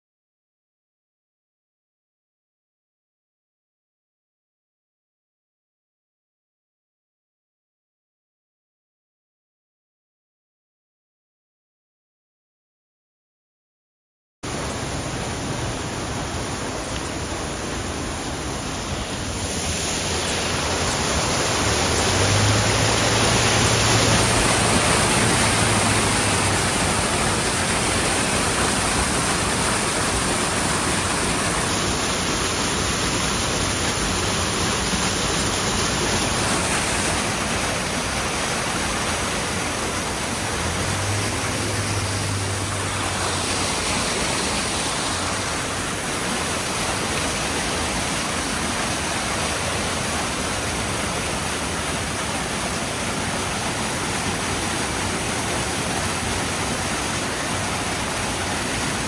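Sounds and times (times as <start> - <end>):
waterfall pouring over rock: 14.5 - 59.0.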